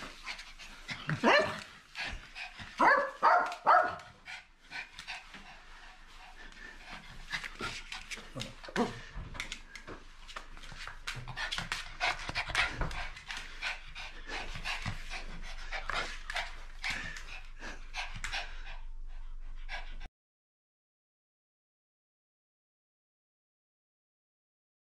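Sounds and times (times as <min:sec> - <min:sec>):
dog panting: 0:00.0 - 0:20.1
paws tapping on wooden floor: 0:00.1 - 0:05.6, 0:06.4 - 0:13.8.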